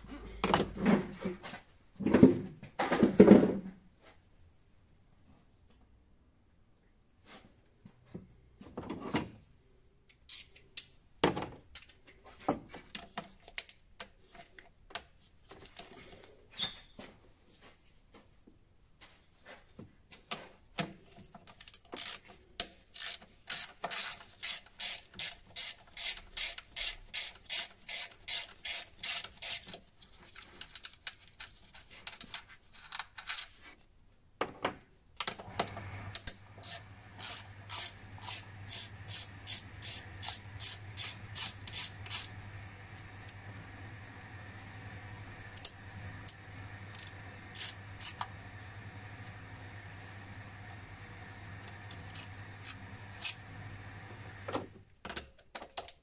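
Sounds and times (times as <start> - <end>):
ratchet wrench clicking: 21.9 - 22.2, 22.9 - 29.8, 36.6 - 42.3.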